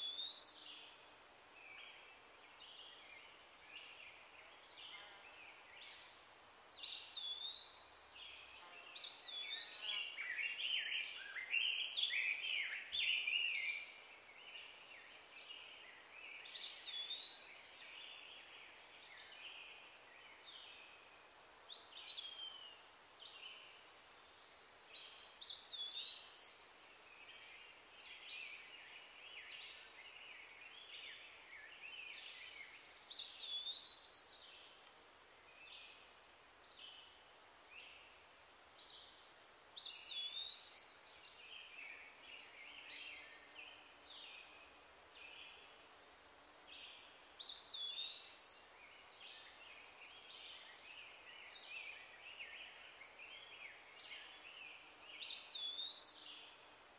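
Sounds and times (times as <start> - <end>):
wild birds calling and singing: 1.6 - 21.1, 38.8 - 45.8, 46.4 - 56.7.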